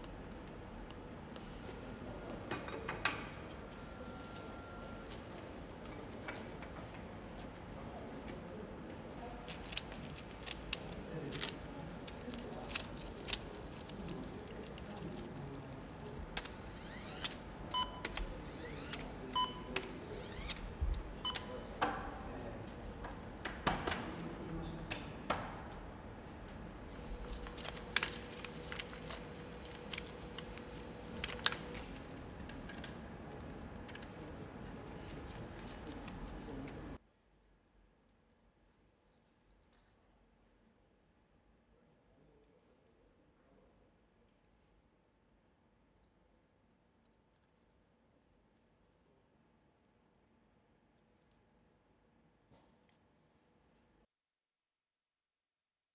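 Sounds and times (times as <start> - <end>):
metal parts clinking: 9.4 - 15.4.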